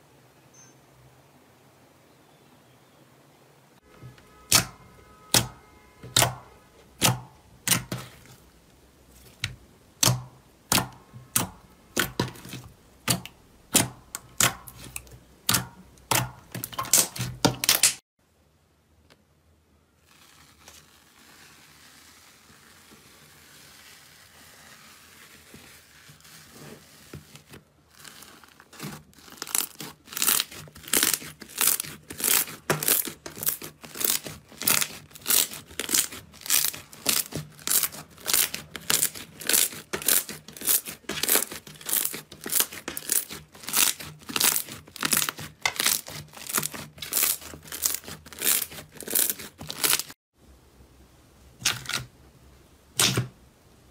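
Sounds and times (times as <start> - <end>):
fingers swirling foamy slime: 20.0 - 50.1
slime crackling when kneaded: 20.0 - 50.2.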